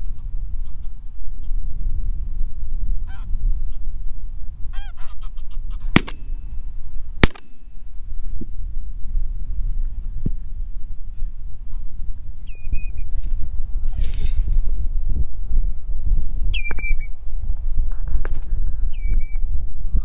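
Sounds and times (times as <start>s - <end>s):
wind rumble on microphone: 0.0s - 20.0s
shotgun shots: 6.0s - 6.3s, 7.2s - 7.7s.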